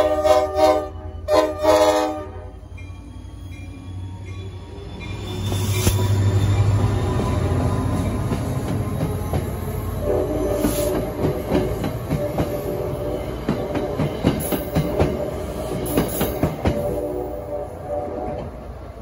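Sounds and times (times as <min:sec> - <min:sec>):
diesel locomotive hum: 0:00.0 - 0:19.0
train wheels clicking over rail joints: 0:05.4 - 0:17.1.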